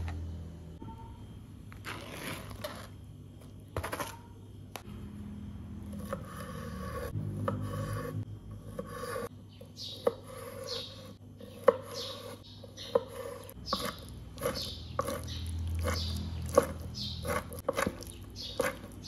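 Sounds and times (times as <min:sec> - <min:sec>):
knife scraping and knocking on board: 0:06.0 - 0:09.3, 0:10.0 - 0:19.0.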